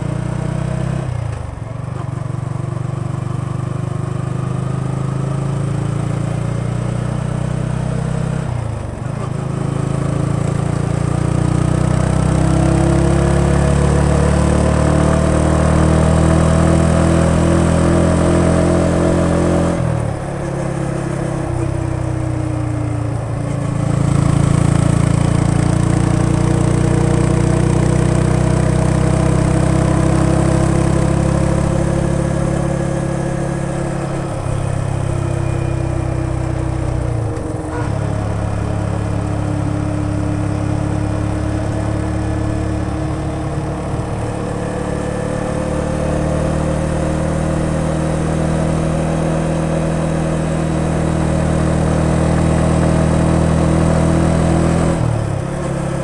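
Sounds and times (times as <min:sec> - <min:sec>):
motorcycle engine running: 0:00.0 - 0:56.0.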